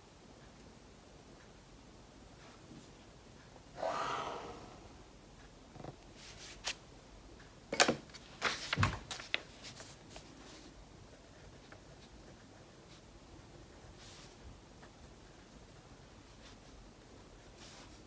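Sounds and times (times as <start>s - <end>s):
pen scratching on paper: 11.1s - 13.1s.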